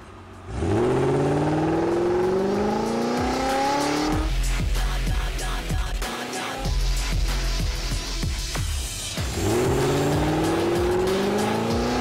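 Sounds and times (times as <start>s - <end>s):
car engine revving: 0.0s - 4.6s, 9.2s - 12.0s
music with heavy bass beat: 0.0s - 12.0s.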